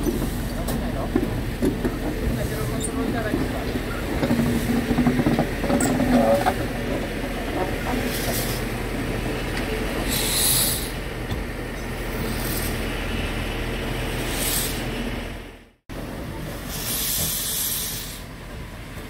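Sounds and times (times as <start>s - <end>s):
steam locomotive rumbling: 0.0s - 19.0s
steam hissing: 7.9s - 8.8s, 10.0s - 11.1s, 14.1s - 15.0s, 16.4s - 18.4s.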